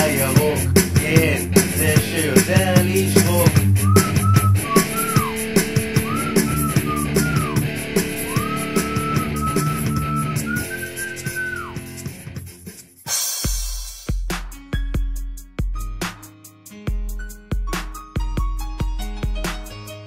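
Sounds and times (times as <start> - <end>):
drum beat and bass: 0.0 - 20.0
high lead melody: 3.9 - 11.9.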